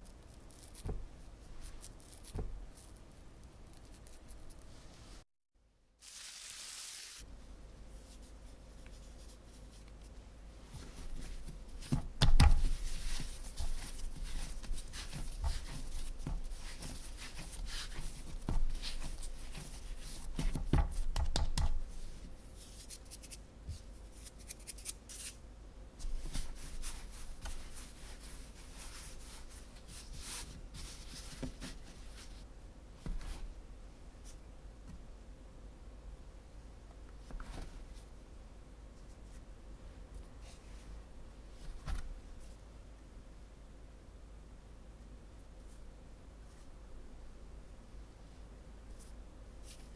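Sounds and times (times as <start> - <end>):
soft rubbing of dough: 0.0 - 5.3, 7.2 - 34.5, 38.9 - 42.7, 48.2 - 49.9
dough thumping on counter: 11.8 - 12.7, 20.3 - 21.8.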